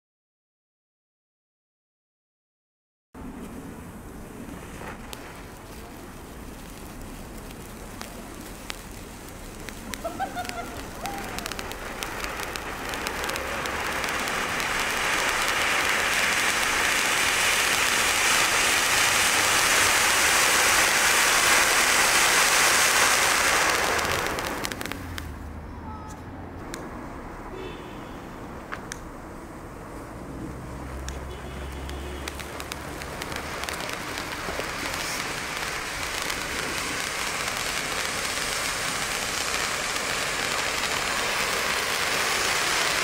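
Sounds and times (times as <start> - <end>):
firework spark spray hissing: 3.2 - 25.6, 28.2 - 43.0
firework crackling: 3.2 - 43.0.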